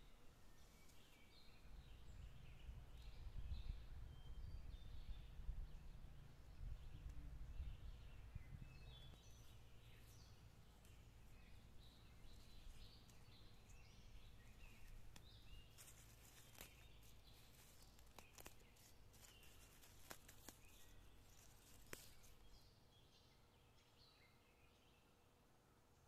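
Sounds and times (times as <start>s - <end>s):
faint bird chirps: 0.0s - 25.8s
plants snapping as plucked: 14.7s - 22.4s.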